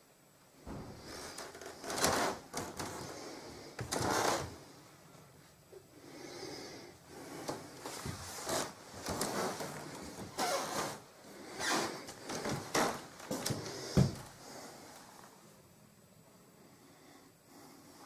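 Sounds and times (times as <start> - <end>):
footsteps and handling noise: 0.7 - 4.6, 7.3 - 15.3.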